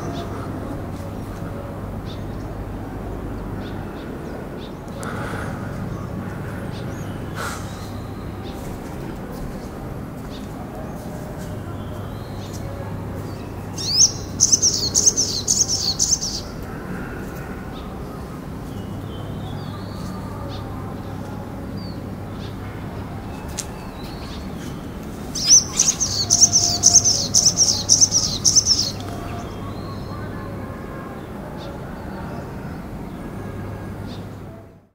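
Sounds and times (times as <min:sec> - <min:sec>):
bird twittering song: 0:11.7 - 0:16.7, 0:23.2 - 0:30.3.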